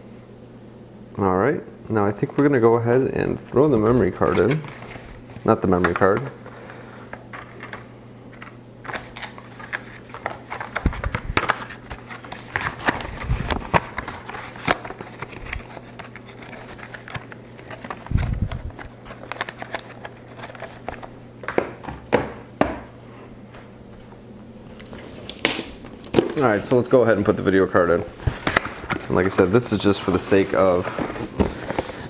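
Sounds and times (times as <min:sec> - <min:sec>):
steady low hum: 0:00.0 - 0:32.0
packaging crinkling: 0:03.8 - 0:21.1.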